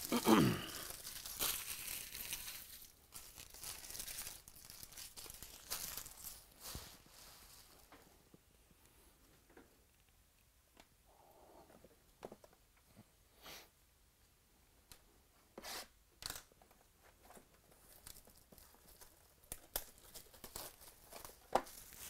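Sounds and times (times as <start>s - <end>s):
packaging ripping: 0.0s - 6.6s, 17.8s - 22.0s
packaging crinkling and crackling: 0.0s - 8.0s, 17.5s - 22.0s.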